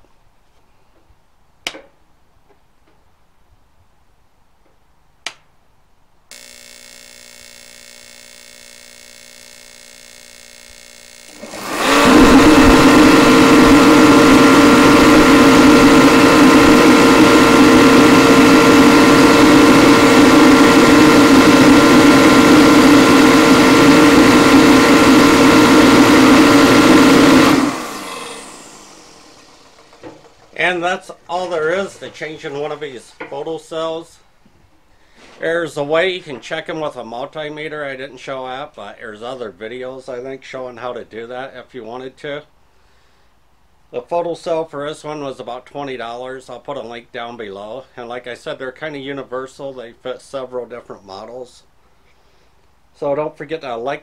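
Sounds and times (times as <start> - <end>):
heater click: 6.3 - 33.4
heater fan and burner roar: 6.3 - 33.8
faint hum: 6.3 - 35.9.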